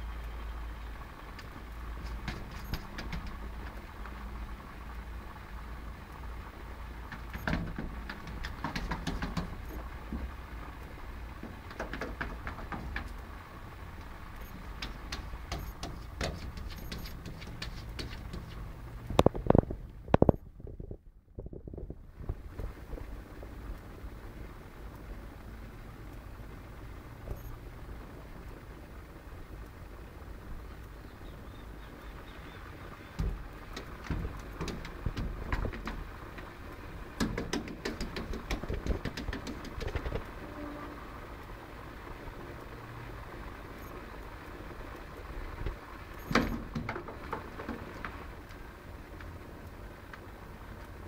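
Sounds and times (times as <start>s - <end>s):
steady low hum: 0.0s - 51.0s
light taps and clicks: 1.4s - 4.2s, 7.0s - 20.4s, 33.1s - 40.4s
cats knocking on glass door: 2.0s - 3.8s, 7.0s - 10.4s, 11.2s - 19.6s, 33.1s - 40.5s, 46.3s - 48.2s.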